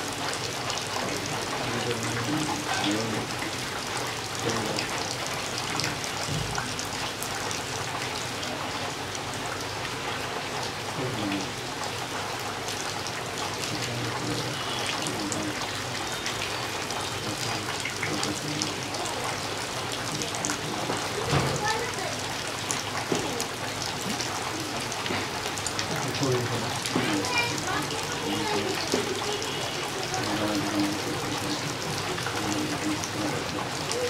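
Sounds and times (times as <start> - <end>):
heavy rain: 0.0 - 34.0
raindrops ticking: 0.0 - 34.0.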